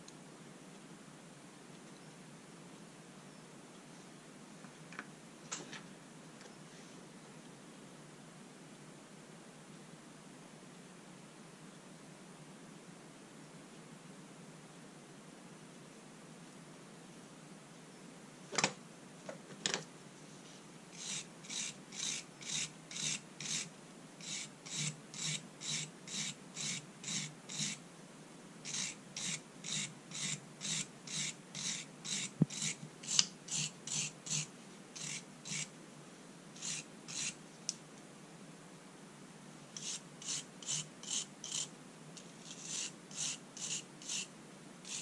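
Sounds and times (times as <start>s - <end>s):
abrasive rasping on steel: 21.0s - 27.8s, 28.7s - 35.7s, 36.6s - 37.4s, 39.8s - 41.7s, 42.4s - 44.3s.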